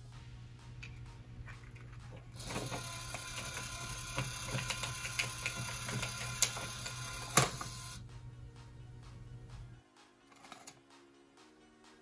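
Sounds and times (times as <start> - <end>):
small motor whirring with clicks: 2.4 - 8.0.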